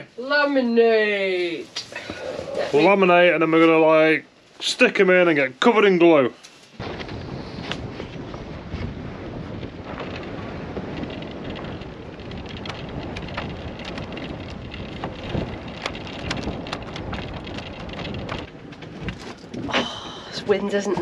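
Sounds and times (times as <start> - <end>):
wind buffeting microphone: 6.8 - 21.0.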